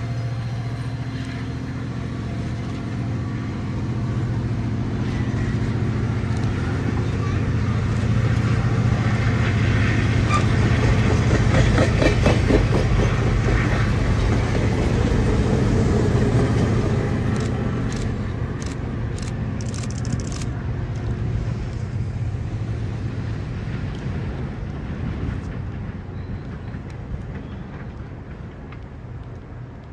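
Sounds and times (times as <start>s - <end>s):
diesel locomotive engine droning: 0.0s - 29.9s
wheels clicking over rail joints: 10.3s - 15.4s.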